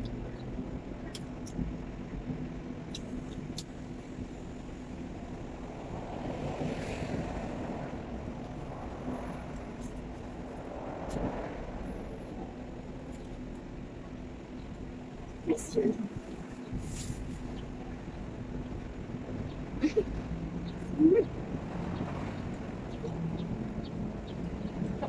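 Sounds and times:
faint constant hum: 0.0 - 25.0
low rumble of traffic: 0.0 - 25.0.

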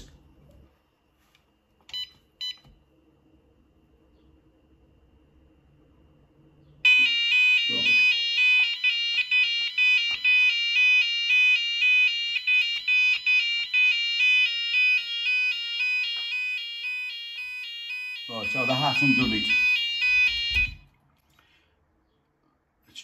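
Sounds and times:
pulsing alarm tone: 6.8 - 20.9.

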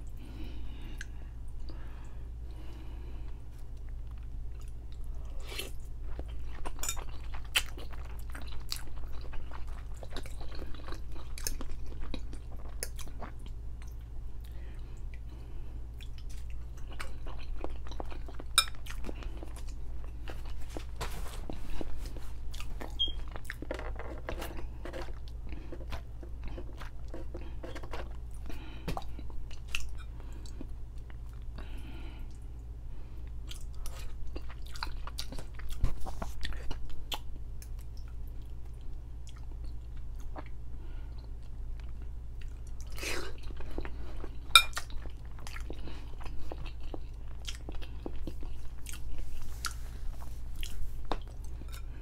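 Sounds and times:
steady low hum: 0.0 - 52.0
wet chewing and mouth smacks: 15.9 - 20.6, 41.2 - 52.0.

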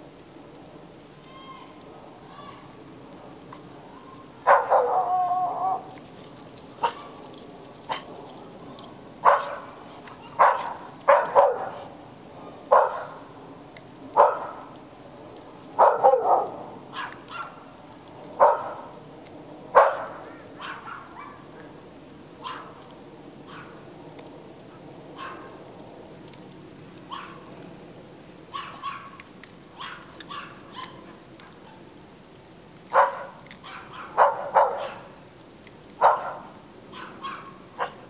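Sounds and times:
dog barking: 4.4 - 5.9, 6.7 - 7.2, 7.9 - 8.2, 9.2 - 9.8, 10.4 - 11.9, 12.7 - 13.2, 14.2 - 14.6, 15.8 - 17.6, 18.4 - 18.9, 19.8 - 21.5, 22.4 - 22.7, 23.5 - 23.8, 25.2 - 25.5, 27.1 - 27.4, 28.5 - 29.2, 29.8 - 31.0, 32.9 - 35.1, 36.0 - 38.0.

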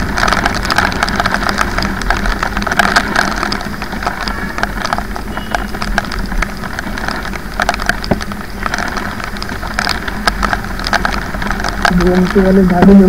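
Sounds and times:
motorcycle engine hum: 0.0 - 13.0
raindrops tapping on camera: 0.0 - 13.0
wet road noise: 0.0 - 13.0.

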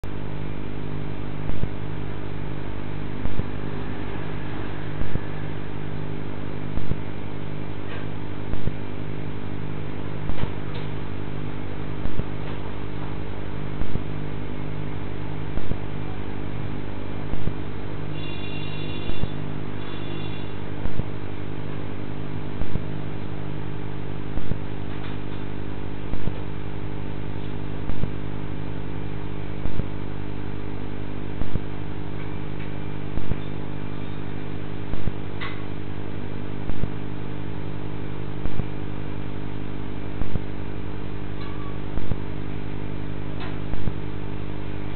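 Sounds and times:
low electrical hum: 0.0 - 44.9
brief high whine: 3.2 - 7.1, 18.1 - 21.0.

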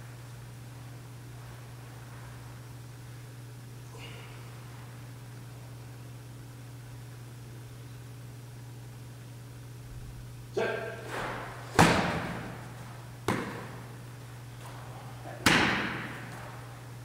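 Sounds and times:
football thuds echoing in a hall: 9.9 - 17.0.

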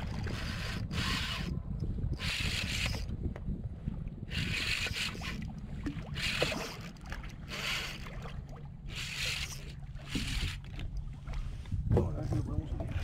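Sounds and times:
fishing reel drag zipping: 0.0 - 3.2, 4.3 - 5.5, 6.1 - 8.1, 8.9 - 10.8.

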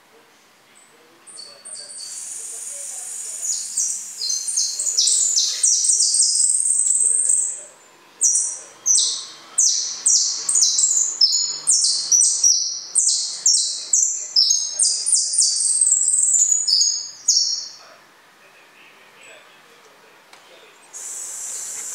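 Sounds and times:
finch twittering song: 1.3 - 17.8.

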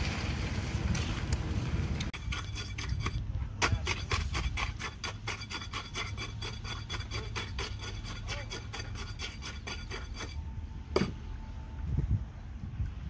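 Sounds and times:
rod knocking and scraping in concrete: 2.1 - 10.4.

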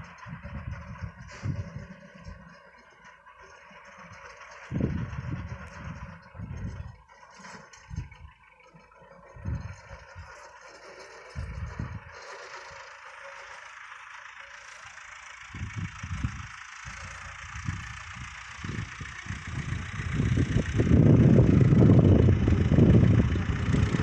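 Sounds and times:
distant tractor and mower drone: 0.0 - 24.0
wind gusts on microphone: 17.5 - 24.0.

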